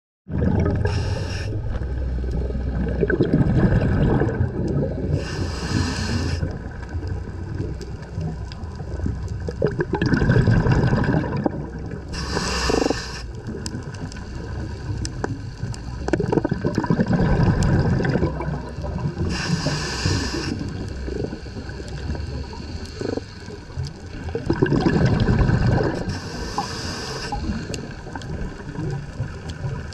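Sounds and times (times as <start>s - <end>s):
gurgling bubbles: 0.3s - 29.9s
water moving: 0.3s - 29.9s
diver breathing hiss underwater: 0.8s - 1.7s, 5.0s - 6.6s, 12.1s - 13.4s, 19.2s - 23.6s, 25.3s - 28.1s.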